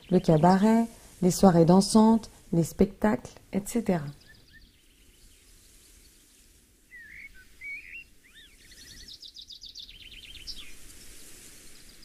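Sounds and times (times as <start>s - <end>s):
faint background hiss: 0.0s - 12.0s
birds warbling: 6.9s - 10.8s.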